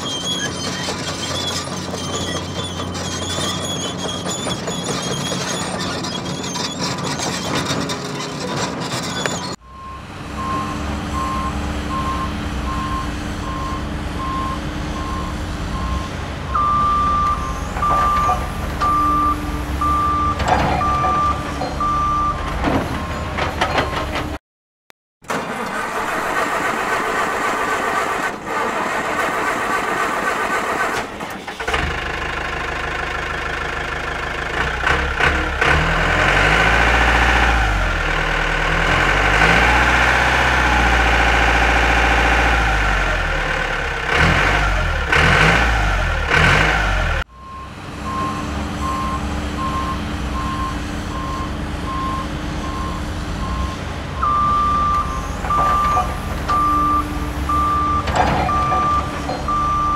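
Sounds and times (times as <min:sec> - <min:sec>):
heavy vehicle engine revving: 0:00.0 - 0:24.4, 0:31.7 - 0:59.9
reversing beeps: 0:09.6 - 0:24.1, 0:47.3 - 0:59.9.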